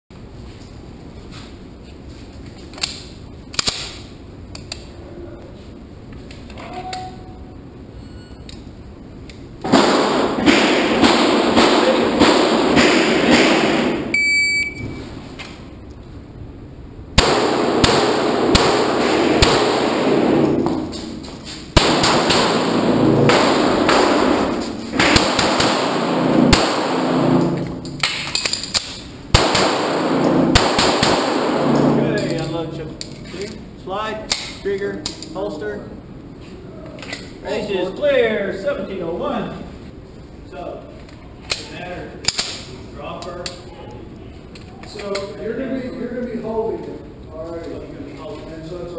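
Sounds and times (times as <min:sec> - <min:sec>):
pistol shots echoing: 0:09.7 - 0:14.1, 0:17.2 - 0:21.1, 0:21.7 - 0:28.4, 0:29.3 - 0:32.4
short electronic beep: 0:14.1 - 0:15.1.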